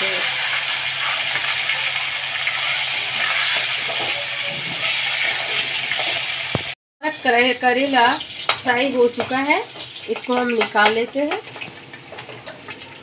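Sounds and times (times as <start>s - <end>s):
vegetables sizzling in hot oil: 0.0s - 13.0s.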